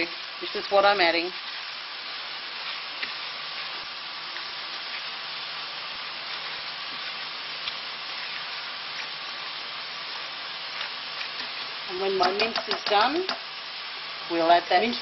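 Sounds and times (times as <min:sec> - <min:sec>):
mince sizzling in a pan: 0:00.0 - 0:15.0.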